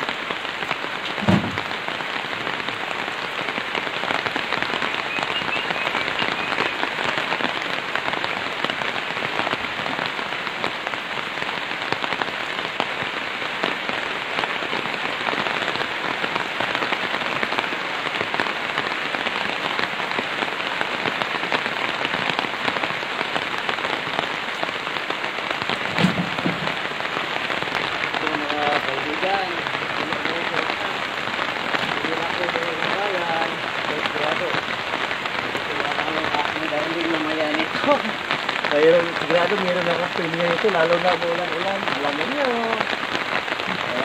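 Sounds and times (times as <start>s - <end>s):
steady rain falling: 0.0s - 44.0s
knock: 1.2s - 1.6s, 25.9s - 26.8s.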